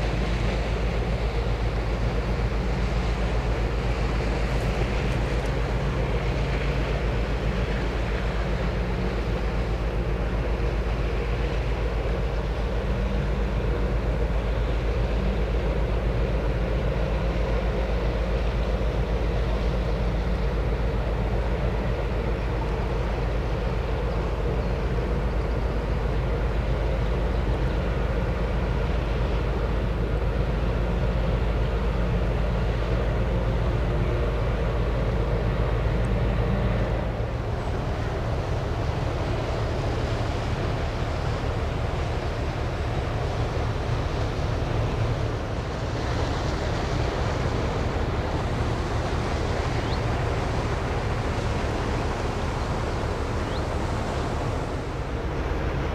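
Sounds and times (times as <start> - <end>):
ship diesel engine drone: 0.0 - 55.9.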